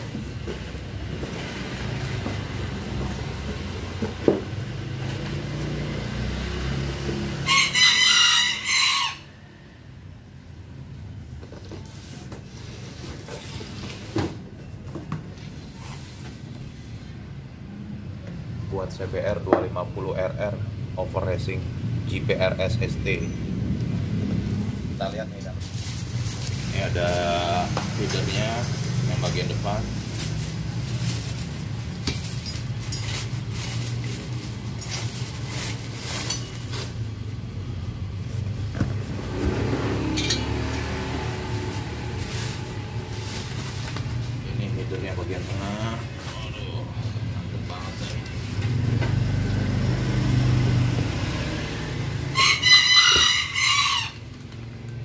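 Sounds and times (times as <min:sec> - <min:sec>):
bubble wrap crinkling: 0:25.4 - 0:28.6, 0:29.2 - 0:37.4, 0:41.2 - 0:46.4.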